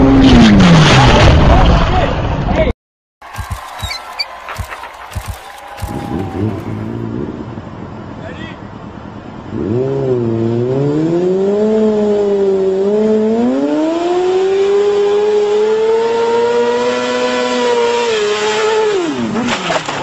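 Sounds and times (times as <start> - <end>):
motorcycle engine revving: 3.3 - 7.6, 9.5 - 19.5.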